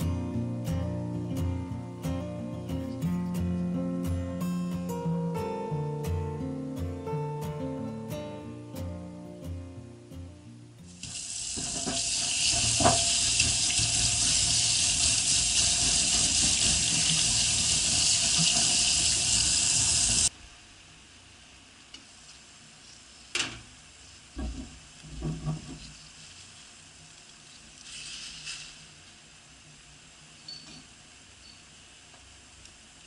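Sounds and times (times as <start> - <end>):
tap water running into a sink: 11.0 - 20.3
plant stalks rubbed under water: 27.8 - 28.8.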